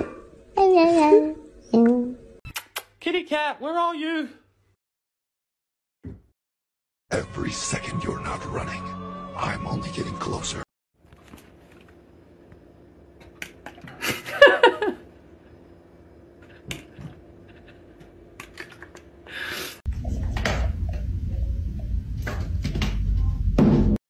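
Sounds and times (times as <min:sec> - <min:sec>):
steady low hum: 0:11.0 - 0:23.6.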